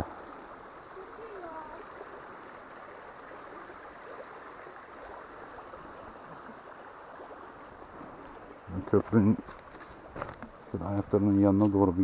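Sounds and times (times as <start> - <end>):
stream babbling over stones: 0.0 - 12.0
faint high chirp: 0.8 - 2.5, 3.6 - 5.8, 6.4 - 6.9, 8.0 - 9.4, 10.1 - 11.6.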